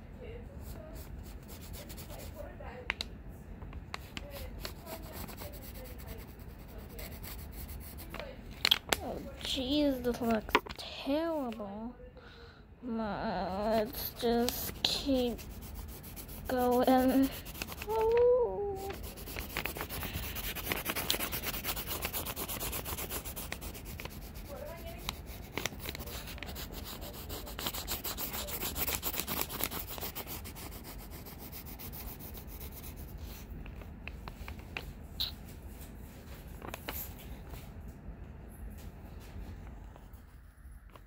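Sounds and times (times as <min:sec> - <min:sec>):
pencil scratching on paper: 0:00.6 - 0:02.5, 0:03.9 - 0:08.3, 0:13.5 - 0:18.1, 0:18.8 - 0:33.5.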